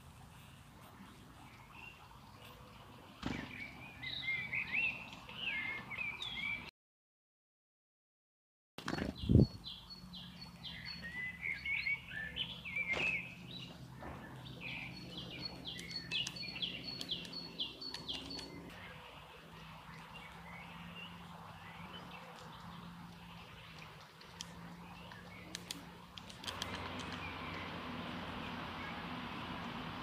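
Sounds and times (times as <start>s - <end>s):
birds twittering: 1.4s - 6.7s, 8.9s - 30.0s
songbirds whistling: 3.2s - 6.7s, 9.1s - 18.9s.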